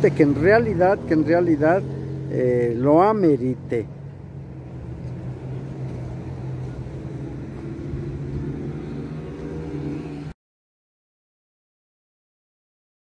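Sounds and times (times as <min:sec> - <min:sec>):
vehicle engine running: 0:00.0 - 0:10.3.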